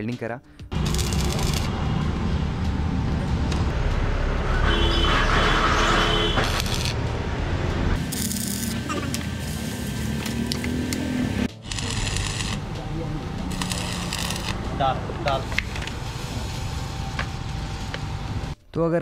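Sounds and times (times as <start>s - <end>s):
arc welding crackling hiss: 0.7s - 1.8s, 6.4s - 7.0s, 8.0s - 12.8s, 13.4s - 18.6s
road traffic rumble: 0.7s - 18.6s.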